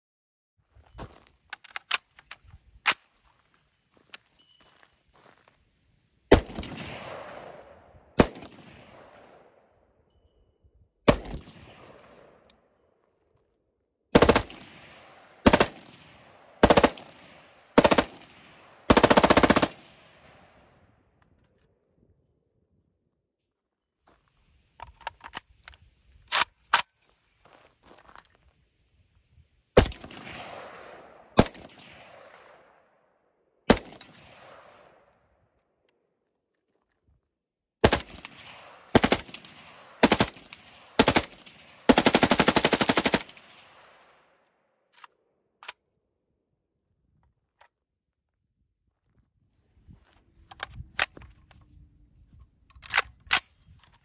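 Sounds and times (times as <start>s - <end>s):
rifle handling clicks: 1.4s - 3.1s, 24.8s - 27.1s, 44.9s - 45.8s, 52.7s - 54.0s
rifle shots with echo: 6.3s - 9.7s, 11.1s - 12.5s, 14.2s - 20.6s, 29.8s - 32.9s, 33.7s - 35.1s, 37.8s - 44.3s.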